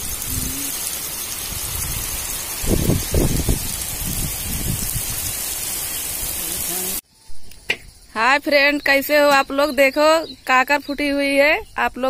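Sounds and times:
heavy rain on puddles and mud: 0.0s - 7.0s.

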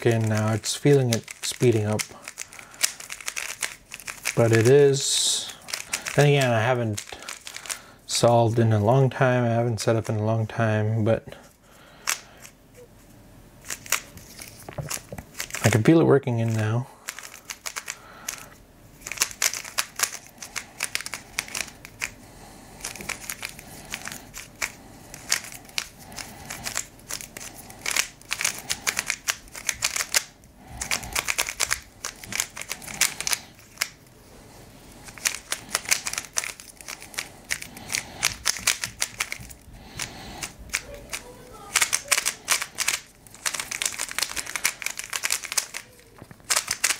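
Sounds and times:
puzzle cube clicking as turned: 0.0s - 4.7s, 5.6s - 7.8s, 13.6s - 15.7s, 17.1s - 18.4s, 19.0s - 22.2s, 22.8s - 34.0s, 35.0s - 46.9s.

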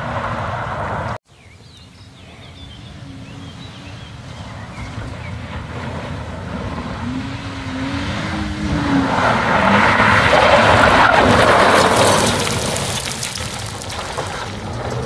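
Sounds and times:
car engine revving: 2.7s - 15.0s
tyres hissing on gravel: 10.4s - 15.0s.

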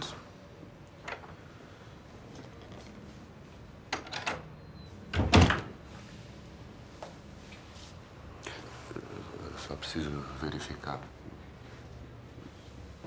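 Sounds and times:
door closing thump: 5.1s - 5.7s.

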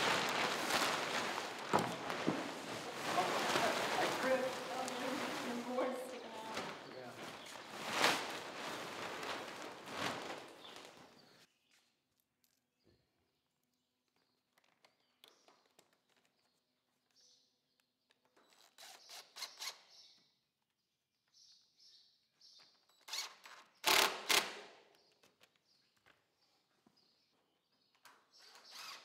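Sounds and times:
plastic tarp rustling: 0.0s - 11.5s.

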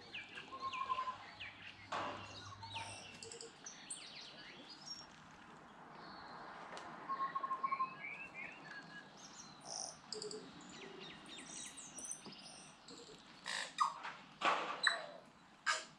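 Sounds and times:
bird singing varied notes: 0.0s - 5.0s, 7.1s - 14.0s.

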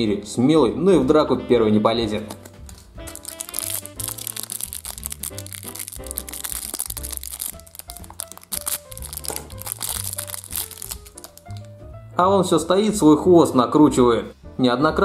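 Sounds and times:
background music with bass line: 0.9s - 15.0s
packaging wrapper crinkling: 2.2s - 11.8s.

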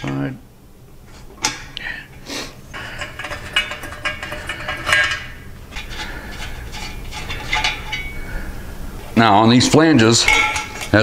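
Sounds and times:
wrench clinking on metal pipes: 2.7s - 8.4s, 9.6s - 11.0s.

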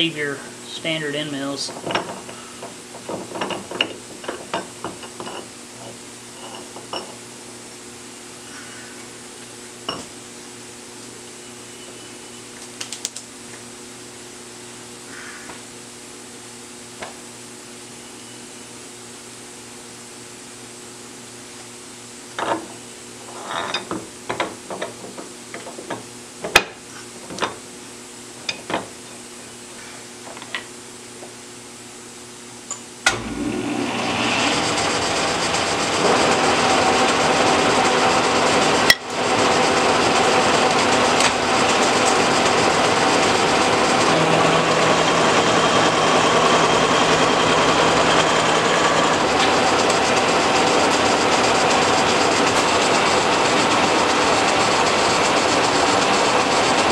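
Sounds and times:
end mill cutting steel: 33.1s - 56.9s.

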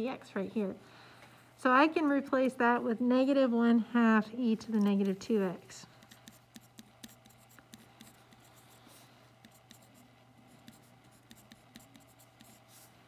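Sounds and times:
pencil writing on paper: 6.0s - 12.9s.

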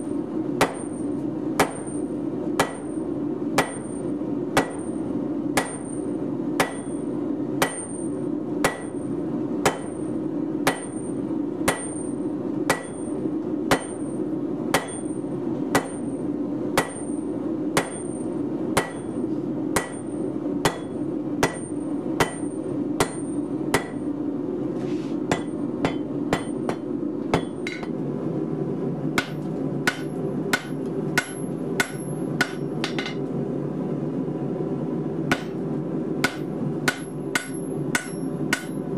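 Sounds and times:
hammer striking steel on anvil: 0.6s - 2.0s, 2.6s - 3.0s, 3.6s - 5.0s, 5.6s - 16.2s, 16.8s - 19.2s, 19.8s - 24.1s, 25.3s - 28.0s, 29.2s - 33.3s, 35.3s - 35.6s, 36.2s - 38.9s.

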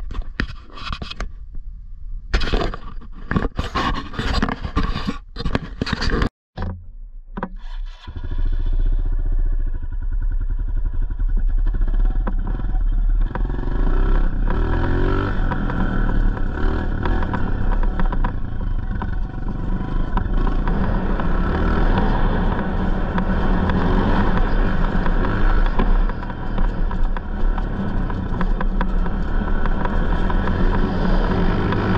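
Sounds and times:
dirt bike engine idling and revving: 8.1s - 31.9s.

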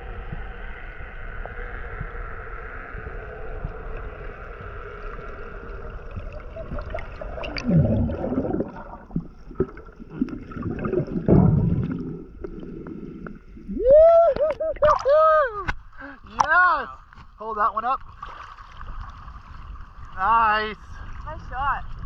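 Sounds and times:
water rushing past whooshes: 5.7s - 13.8s.

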